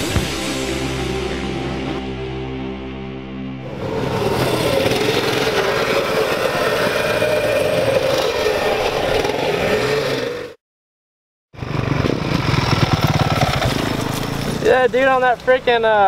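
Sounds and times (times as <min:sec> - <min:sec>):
dirt bike engine running: 0:03.6 - 0:10.5, 0:11.6 - 0:15.4.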